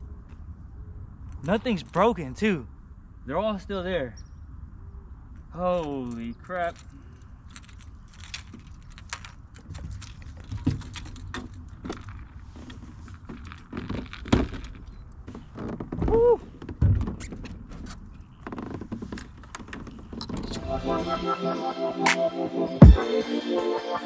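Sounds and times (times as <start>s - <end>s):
fishing gear clicks and rattles: 5.8s - 15.2s.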